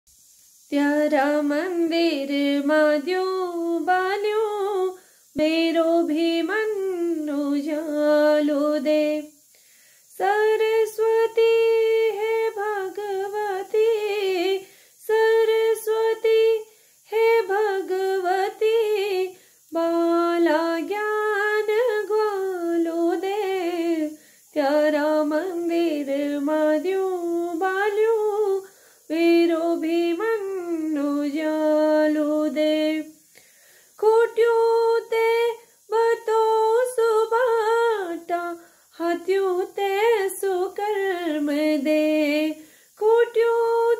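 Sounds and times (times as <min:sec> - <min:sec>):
woman singing unaccompanied: 0:00.6 - 0:43.9.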